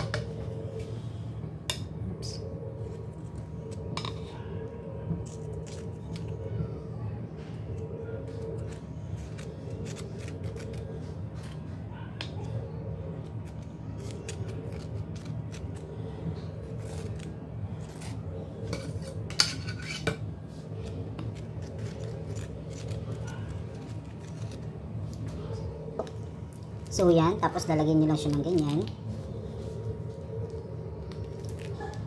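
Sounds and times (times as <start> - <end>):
steady low hum: 0.0 - 32.0
metal spatula scraping and clicking: 17.9 - 20.2.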